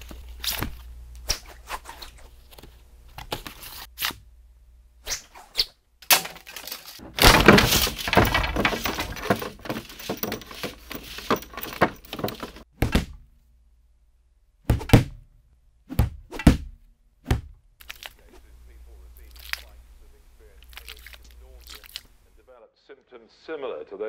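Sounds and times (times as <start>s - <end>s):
crashing and breaking: 6.0s - 12.6s
heavy thuds: 7.0s - 13.2s.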